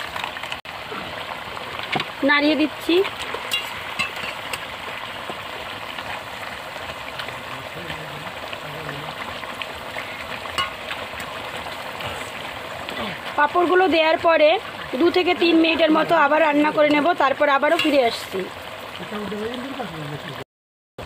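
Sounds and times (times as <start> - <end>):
gravy simmering and sizzling: 0.0 - 20.4.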